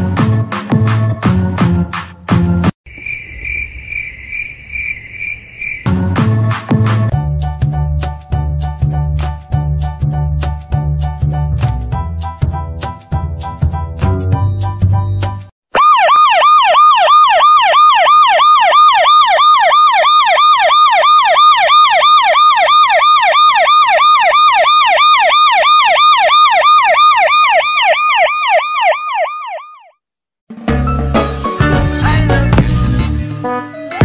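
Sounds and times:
siren yelping: 15.7s - 30.0s.

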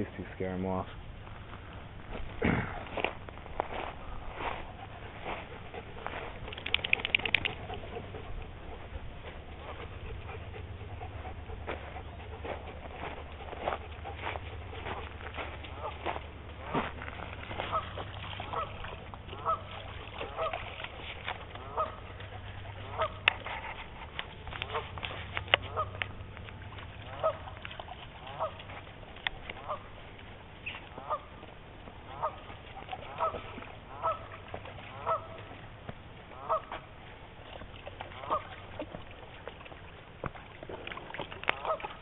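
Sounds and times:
sharp clicks: 6.4s - 7.6s
geese honking: 14.2s - 20.7s, 21.5s - 23.7s, 24.6s - 26.1s, 27.0s - 27.6s, 28.2s - 28.7s, 29.5s - 30.0s, 30.6s - 31.4s, 32.0s - 35.6s, 36.3s - 36.9s, 38.2s - 38.6s, 41.5s - 41.9s.

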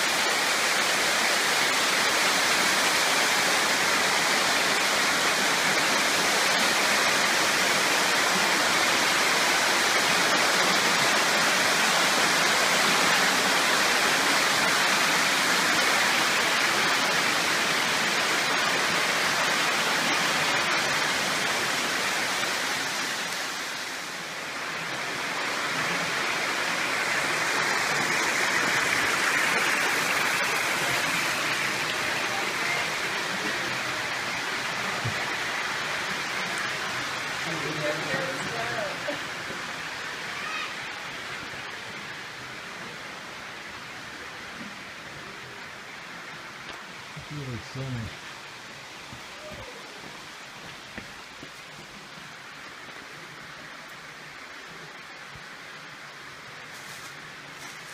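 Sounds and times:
small waterfall rushing: 0.0s - 57.9s.

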